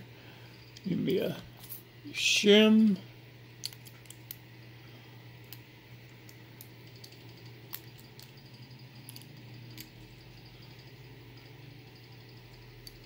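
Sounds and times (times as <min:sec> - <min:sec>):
low steady hum: 0:00.0 - 0:13.0
metal tools clicking: 0:06.2 - 0:11.5, 0:12.4 - 0:13.0.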